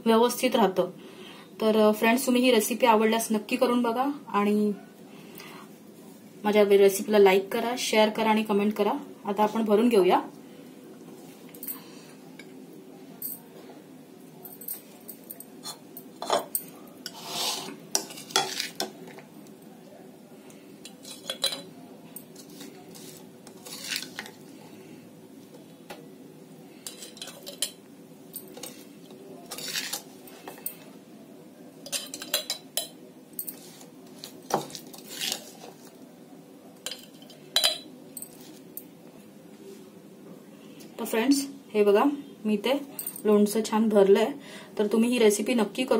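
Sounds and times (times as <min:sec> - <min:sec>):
spoon scraping ceramic bowl: 0:15.6 - 0:18.9.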